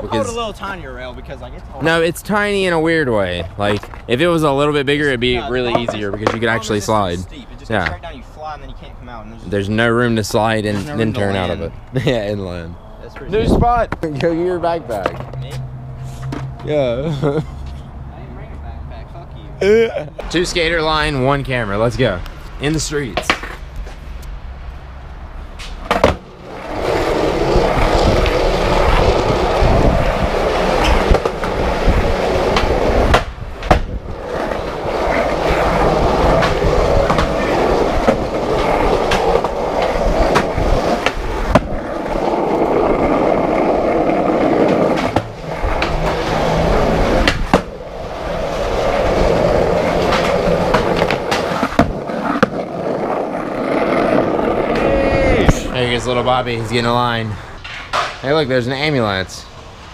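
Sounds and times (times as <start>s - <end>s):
skateboard wheels rolling on concrete: 0.0s - 19.3s, 20.0s - 59.9s
skateboard sharp clack: 5.6s - 6.5s, 32.5s - 42.7s, 47.0s - 52.7s.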